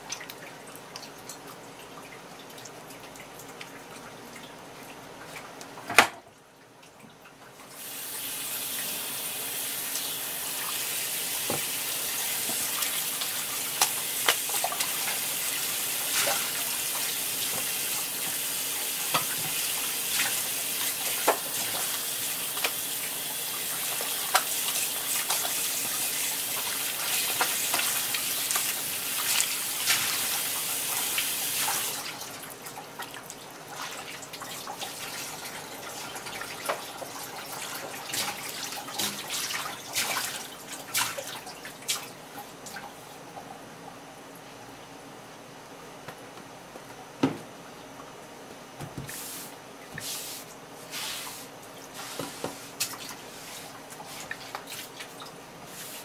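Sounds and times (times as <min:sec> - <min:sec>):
water dripping: 0:00.0 - 0:07.8.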